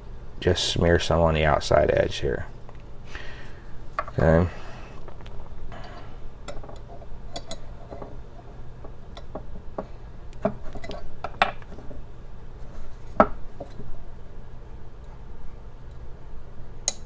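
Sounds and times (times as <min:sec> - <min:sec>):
revolver parts clicking: 0:05.8 - 0:08.1.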